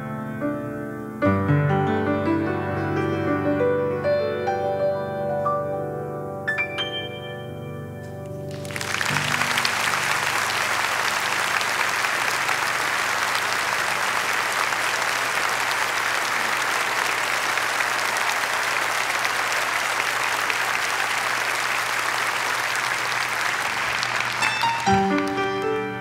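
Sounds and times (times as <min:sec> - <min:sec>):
audience applauding: 0:08.5 - 0:26.0.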